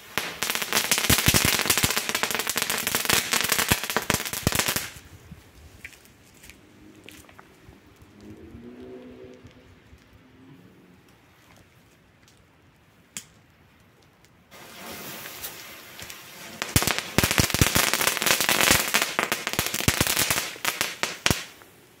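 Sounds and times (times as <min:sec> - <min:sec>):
firework hissing: 0:00.0 - 0:05.0, 0:14.5 - 0:22.0
firework crackling pops: 0:00.0 - 0:05.1, 0:14.2 - 0:22.0.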